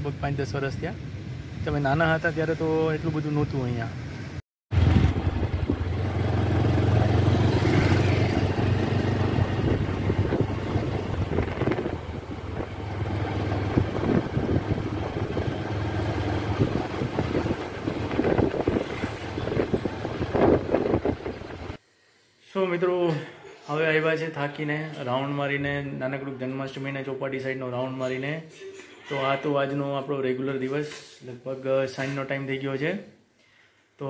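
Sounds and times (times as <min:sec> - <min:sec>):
traffic noise: 0:01.0 - 0:21.8
wind rumble on microphone: 0:07.5 - 0:21.8.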